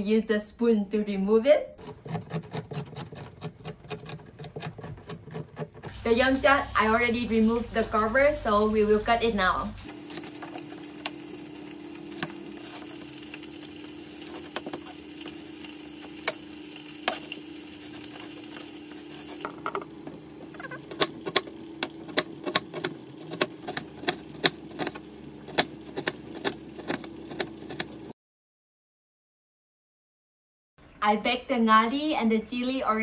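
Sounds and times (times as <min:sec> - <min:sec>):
knife chopping on cutting board: 0:20.8 - 0:28.0.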